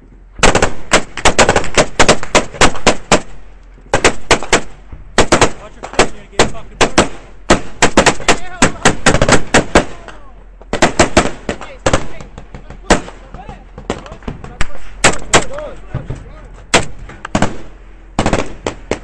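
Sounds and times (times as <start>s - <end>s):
automatic gunfire: 0.4s - 3.3s, 3.9s - 10.1s, 10.7s - 13.2s, 13.8s - 15.6s, 16.7s - 19.0s.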